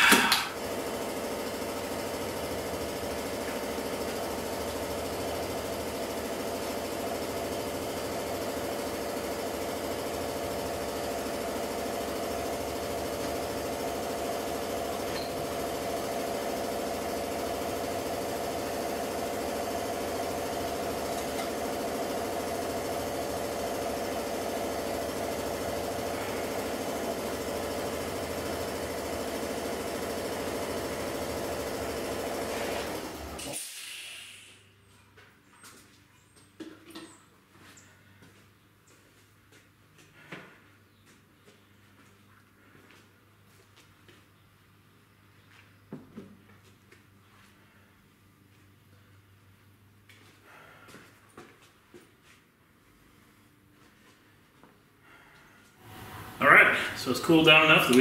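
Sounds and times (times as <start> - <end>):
oven electric hum: 54.4 - 58.0.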